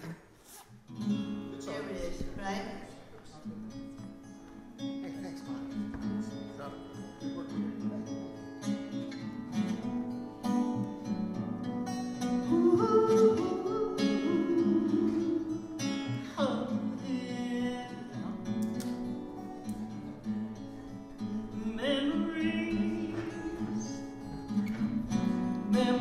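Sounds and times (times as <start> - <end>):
acoustic guitar: 0.0 - 26.0
woman singing: 12.4 - 18.2, 21.5 - 24.1, 25.7 - 26.0.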